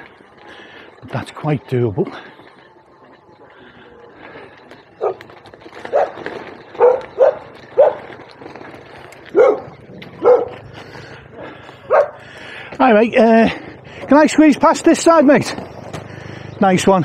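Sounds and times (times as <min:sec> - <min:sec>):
dog barking: 0:05.0 - 0:05.2, 0:05.9 - 0:06.2, 0:06.8 - 0:08.1, 0:09.3 - 0:10.6, 0:11.9 - 0:12.2.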